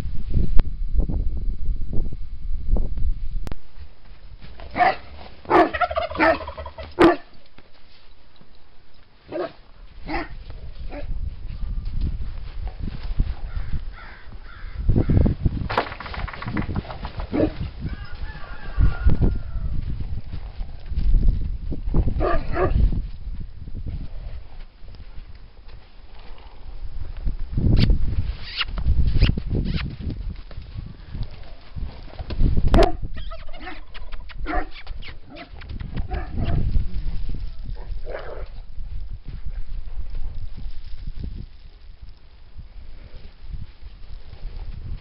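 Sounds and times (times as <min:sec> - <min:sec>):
wind rumble on microphone: 0:00.0 - 0:06.8, 0:09.7 - 0:45.0
dog barking: 0:04.7 - 0:07.3, 0:09.3 - 0:11.1, 0:22.2 - 0:22.8, 0:32.8 - 0:33.0, 0:34.4 - 0:34.7, 0:36.1 - 0:36.6
horse galloping through snow: 0:09.2 - 0:14.2, 0:15.5 - 0:27.1, 0:28.0 - 0:33.0, 0:35.8 - 0:45.0.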